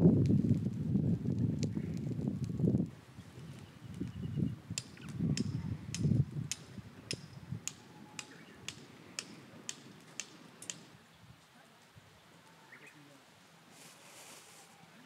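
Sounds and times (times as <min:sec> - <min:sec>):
sharp ticks: 0:04.8 - 0:10.9.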